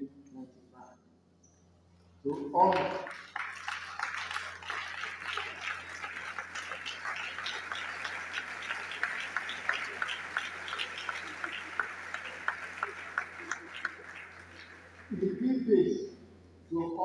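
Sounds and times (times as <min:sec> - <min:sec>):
audience applauding: 0:02.3 - 0:15.4.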